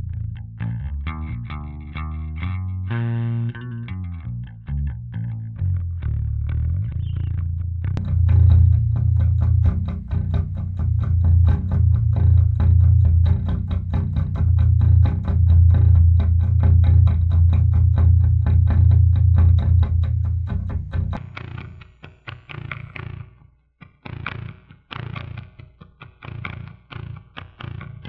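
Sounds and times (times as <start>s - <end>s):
electric bass playing low notes: 0.0s - 21.2s.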